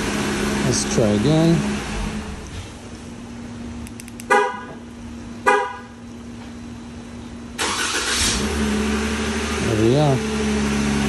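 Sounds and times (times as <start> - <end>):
car engine starting and idling: 0.0 - 5.5, 6.7 - 11.0
car horn chirps: 4.2 - 4.8, 5.4 - 6.0.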